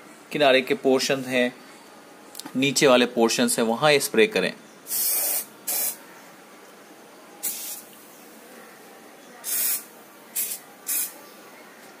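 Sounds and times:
aerosol can spraying: 4.9s - 6.0s, 7.4s - 7.9s, 9.4s - 11.2s.

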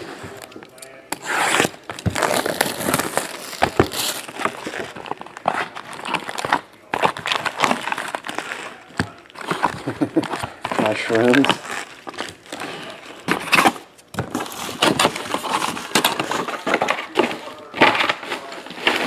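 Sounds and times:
plastic wrapping tearing and crinkling: 0.0s - 19.0s.

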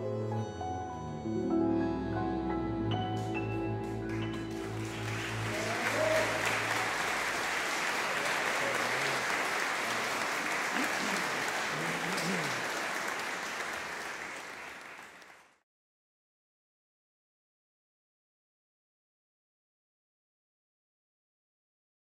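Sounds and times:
audience applauding: 3.0s - 15.6s.

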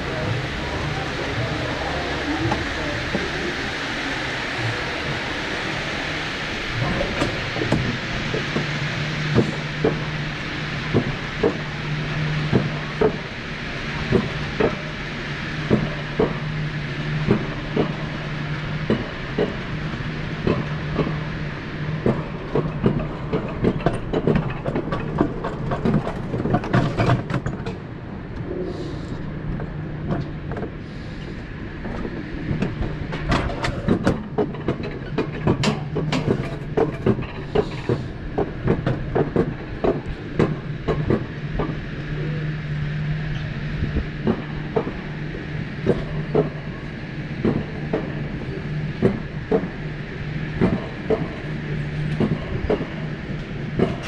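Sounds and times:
coaster wheels rumbling on rail: 0.0s - 54.0s
clacks and knocks: 22.0s - 27.8s, 31.8s - 41.8s.

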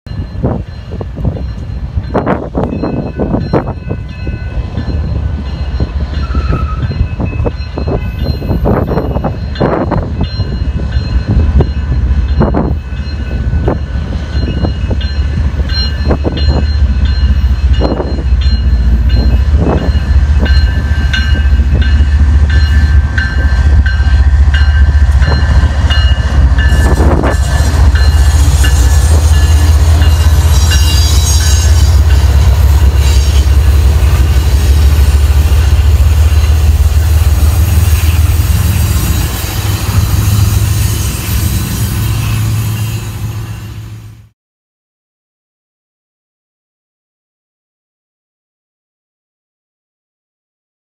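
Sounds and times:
diesel locomotive engine rumble: 0.1s - 44.4s.

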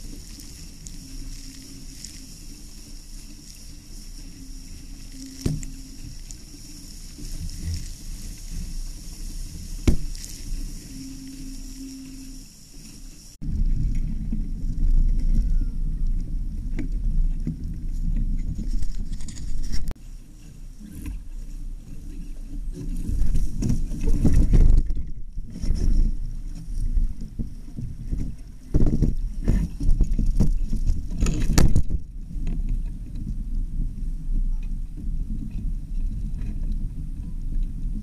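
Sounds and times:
water slapping against boat hull: 9.8s - 10.4s.

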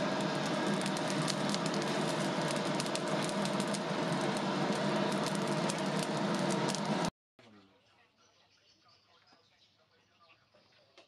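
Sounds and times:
coals crackling and popping: 0.0s - 7.1s
forge fire rushing roar: 0.0s - 7.1s.

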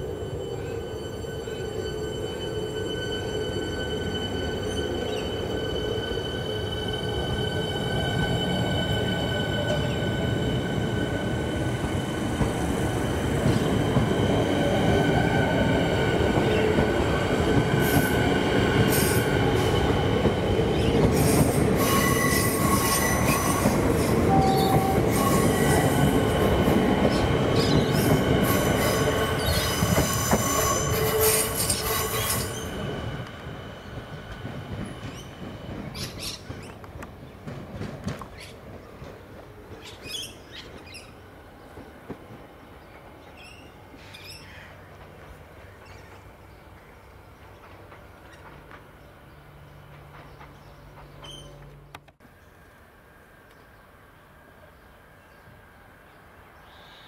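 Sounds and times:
distant electric train running: 0.0s - 56.6s
train wheels rumbling on rails: 2.8s - 43.6s, 47.0s - 52.2s
high wheel squeals: 21.2s - 26.2s, 27.1s - 33.1s.

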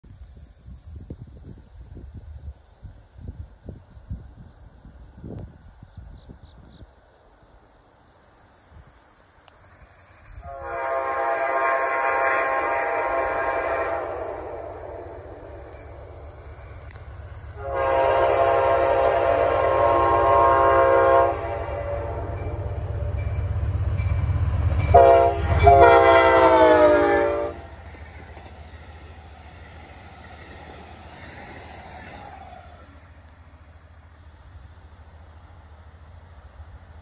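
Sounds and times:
approaching train rumble: 0.0s - 37.0s
train air horn blasts: 10.4s - 16.1s, 17.5s - 23.4s, 24.6s - 27.8s.

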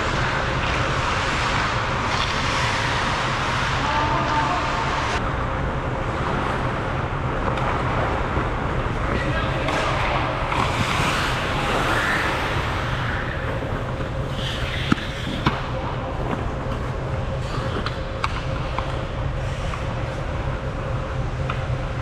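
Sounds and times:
hockey sticks and puck clacking: 0.0s - 3.8s, 9.1s - 16.8s, 17.4s - 19.0s
skate blades scraping ice: 0.0s - 5.2s, 9.7s - 20.2s
low hum: 0.0s - 22.0s.

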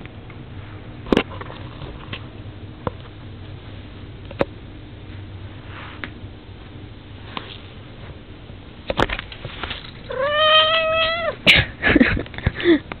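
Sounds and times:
cat meowing: 10.1s - 11.4s.

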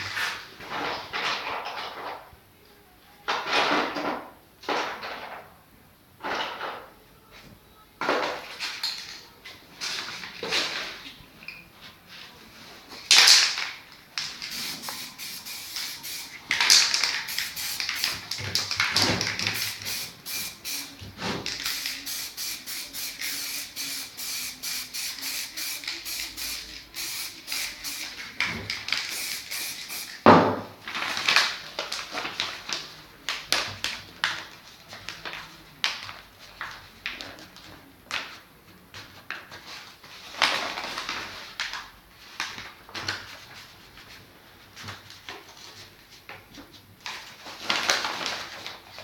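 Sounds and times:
spray paint can hissing: 14.2s - 30.3s.

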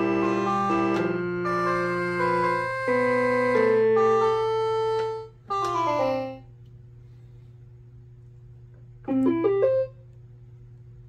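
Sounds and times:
toy keyboard chords: 0.0s - 6.6s, 9.1s - 9.9s
low steady hum: 0.0s - 11.0s.

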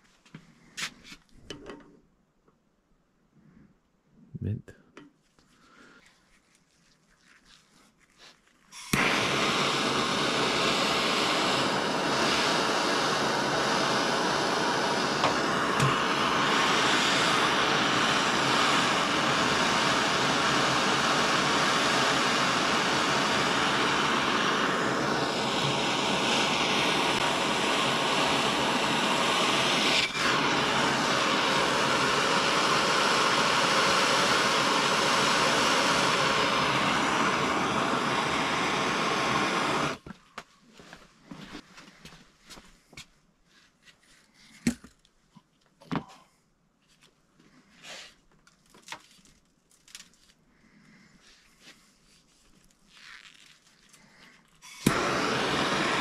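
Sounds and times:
soldering torch hissing: 8.7s - 40.1s, 53.0s - 56.0s.

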